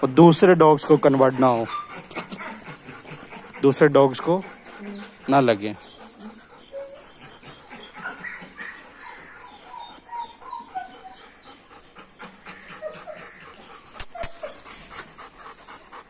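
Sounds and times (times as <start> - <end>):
dog whining softly: 0.8 - 16.0
sharp clicks: 13.9 - 14.4.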